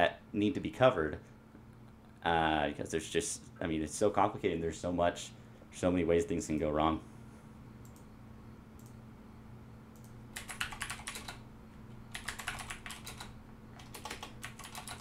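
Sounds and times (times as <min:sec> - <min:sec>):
faint steady hum: 0:00.0 - 0:15.0
keyboard typing: 0:10.0 - 0:11.4, 0:12.1 - 0:15.0.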